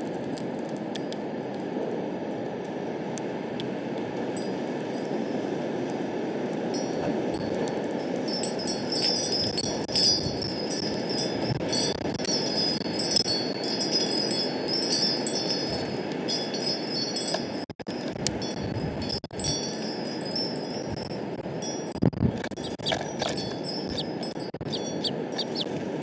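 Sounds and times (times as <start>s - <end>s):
strong wind rushing: 1.4s - 26.0s
metal wind chimes ringing: 4.4s - 5.4s, 6.7s - 25.8s.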